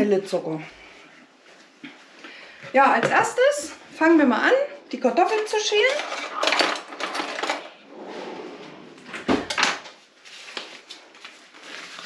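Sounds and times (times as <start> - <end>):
dishes and cutlery clattering: 5.7 - 7.8.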